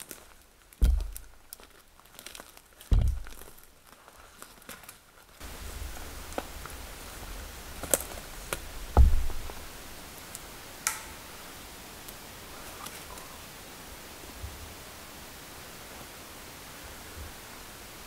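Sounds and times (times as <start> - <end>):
steady hiss: 0.0 - 18.0
heavy low thump: 0.8 - 1.4, 2.9 - 3.5, 8.8 - 9.6
faint twig snaps: 10.3 - 11.2.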